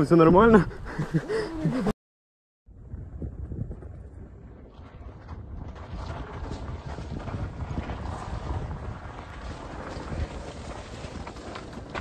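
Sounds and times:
wind buffeting microphone: 0:02.7 - 0:12.0.

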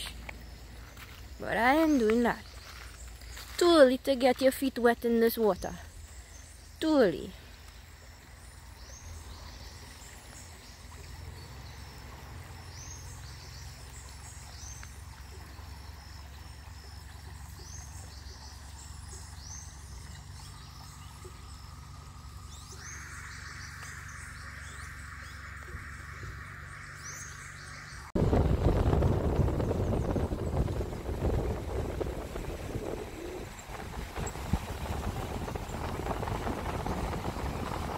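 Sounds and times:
bird chirping: 0:08.4 - 0:28.2
low rumble: 0:18.2 - 0:37.9.

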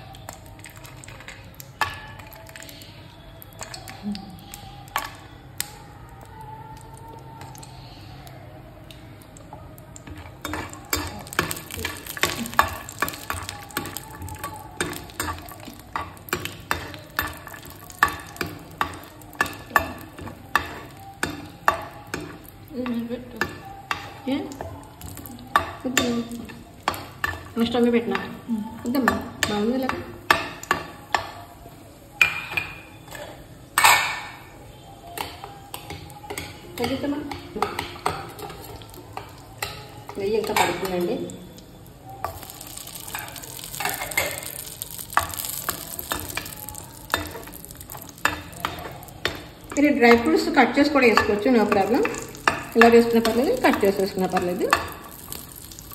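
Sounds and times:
light frying sizzle: 0:00.0 - 0:55.9
spoon scraping pan: 0:42.3 - 0:55.5.

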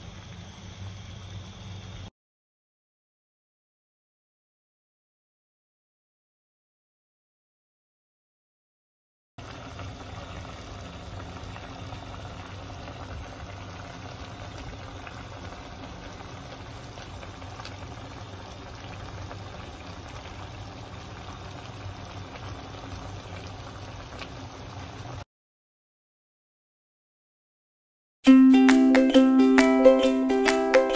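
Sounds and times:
stew bubbling: 0:09.4 - 0:25.2.

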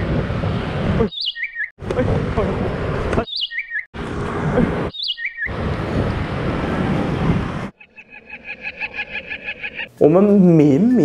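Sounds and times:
street traffic noise: 0:00.0 - 0:11.0
pedestrian crossing signal chirps: 0:01.1 - 0:01.7, 0:03.2 - 0:03.9, 0:04.9 - 0:05.6.

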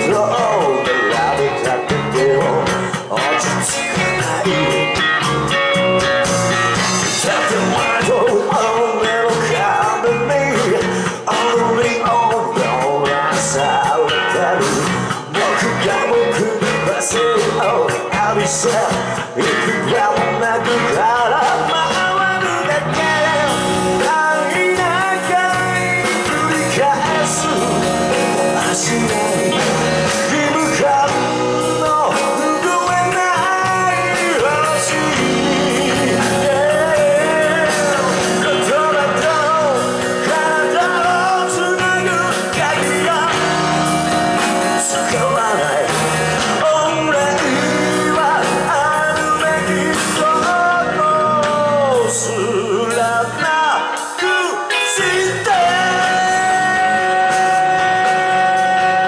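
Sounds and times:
lead singer vocals: 0:00.0 - 0:59.0
rock band playing: 0:00.0 - 0:59.0.

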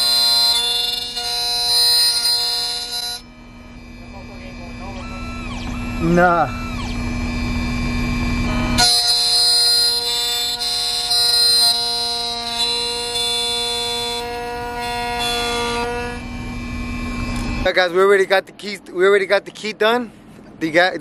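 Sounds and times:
key-cutting machine whine: 0:00.0 - 0:20.6
motor hum: 0:00.0 - 0:21.0.

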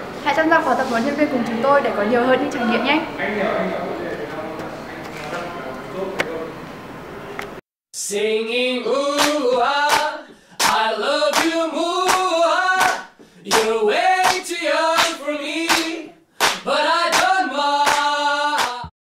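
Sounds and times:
voices singing pop song: 0:08.0 - 0:18.9
handclaps on the beat: 0:09.1 - 0:18.9.

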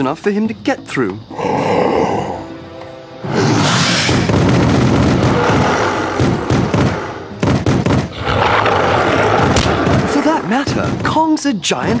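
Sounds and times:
booming hits: 0:03.6 - 0:11.3.

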